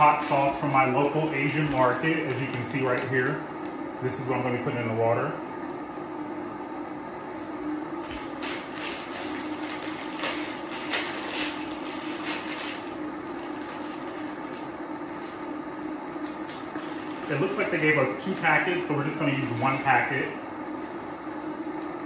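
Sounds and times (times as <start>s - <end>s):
steady low hum: 0.0s - 22.0s
plastic bag crinkling: 1.0s - 3.8s, 8.0s - 15.5s, 16.2s - 20.0s.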